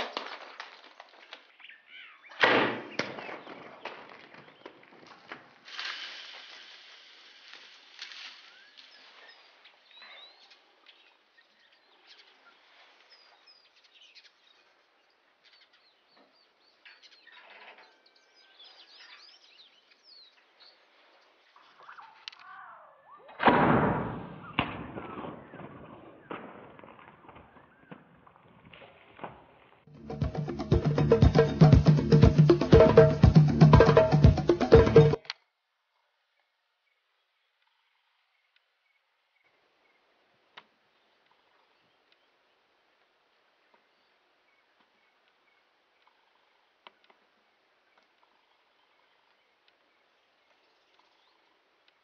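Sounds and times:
faint birds chirping: 1.2 - 4.9, 7.8 - 23.3, 35.8 - 52.0.

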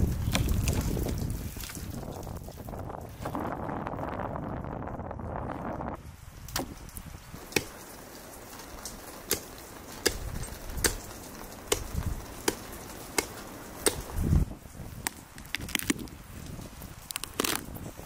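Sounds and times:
blade chopping: 7.4 - 7.9, 11.7 - 14.2.

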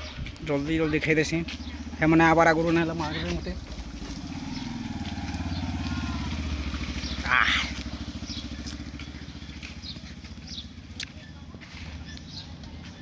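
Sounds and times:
motorcycle engine pulsing: 0.4 - 13.0.

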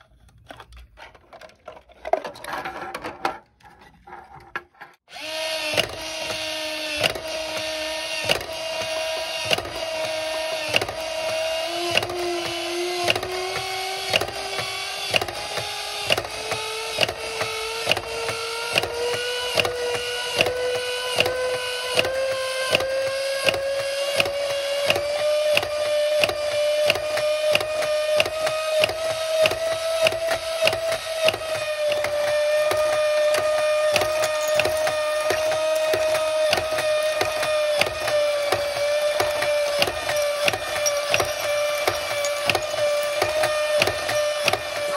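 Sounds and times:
electric motor whining: 5.1 - 44.9
mechanism clicking rapidly: 22.0 - 44.9
mechanism knocking: 22.0 - 44.9.

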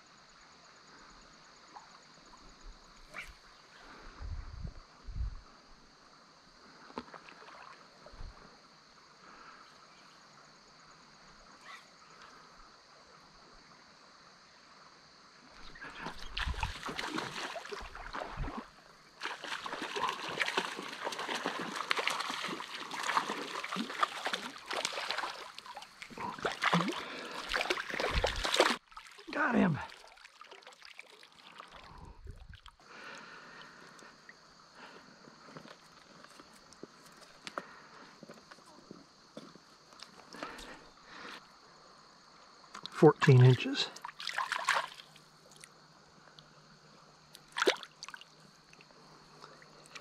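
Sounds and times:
faint creek flow: 0.0 - 50.0
fish splashing and thrashing: 15.6 - 32.8, 44.0 - 45.7, 47.4 - 48.3.

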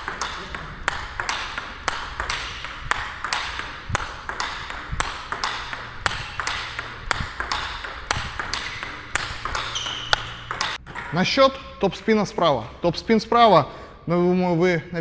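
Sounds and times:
ping-pong ball bouncing on table: 0.0 - 11.2
ping-pong ball clicking off rackets: 0.0 - 11.2.

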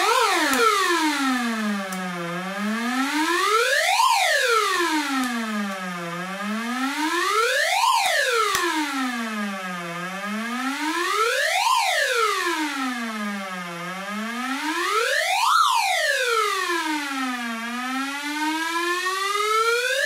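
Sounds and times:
buzzy siren-like sweeping tone: 0.0 - 4.7.

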